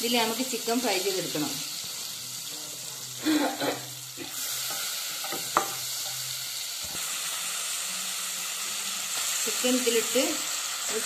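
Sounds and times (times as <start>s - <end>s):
chicken sizzling in butter: 0.0s - 11.0s
spatula knocking against pan: 5.3s - 5.8s.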